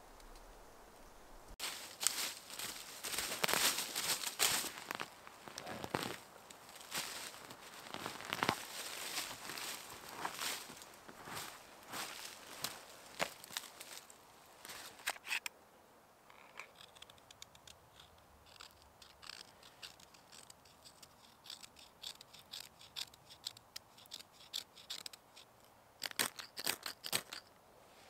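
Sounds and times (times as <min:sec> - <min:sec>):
dry twigs crackling and snapping: 0:01.6 - 0:15.3.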